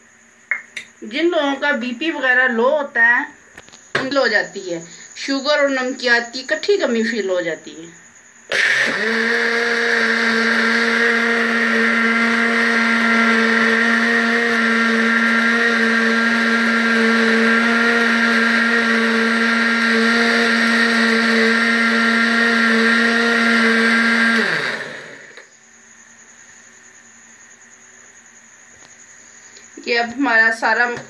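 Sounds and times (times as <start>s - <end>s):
blender motor running: 8.5s - 25.5s.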